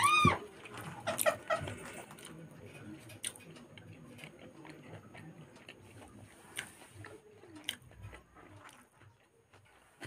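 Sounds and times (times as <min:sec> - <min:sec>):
lip smacks and mouth clicks: 0:04.2 - 0:08.8.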